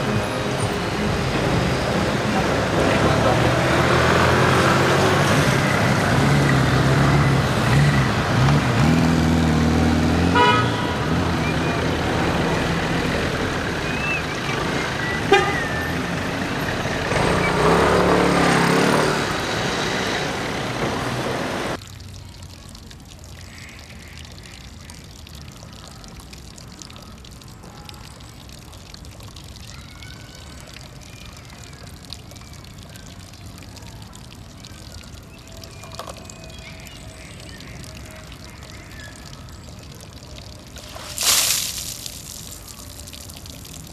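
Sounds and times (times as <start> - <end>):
heavy vehicle passing: 0.0 - 21.8
city street traffic: 0.0 - 43.9
water trickling into plastic bucket: 21.8 - 43.9.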